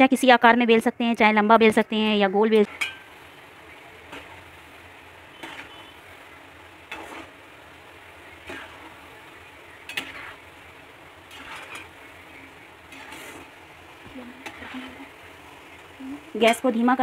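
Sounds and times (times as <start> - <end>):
snacks sizzling in hot oil: 0.0 - 17.0
metal ladle clinking against pan: 2.6 - 3.1.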